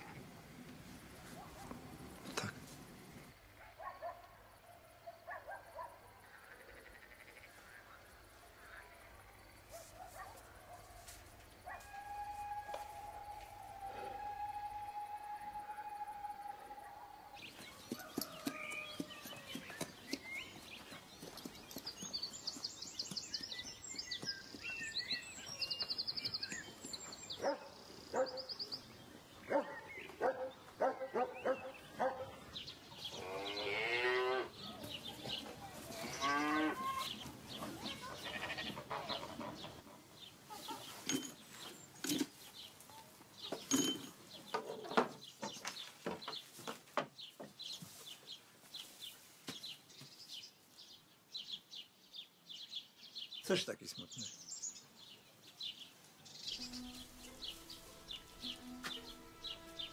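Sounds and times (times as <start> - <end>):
farm animal calling: 33.1 - 41.0.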